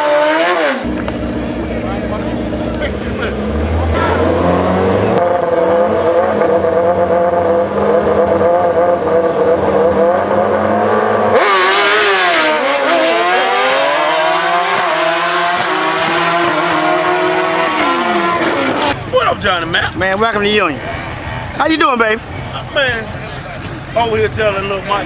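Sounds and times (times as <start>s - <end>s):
motorcycle engine revving and accelerating: 0.0s - 19.0s.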